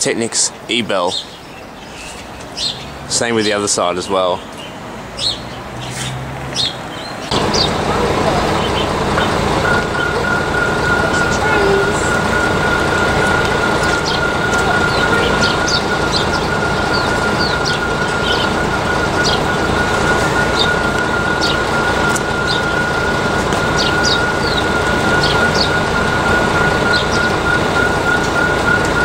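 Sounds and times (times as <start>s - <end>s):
small birds chirping: 0.0s - 29.0s
level-crossing bell high tone: 7.3s - 23.4s.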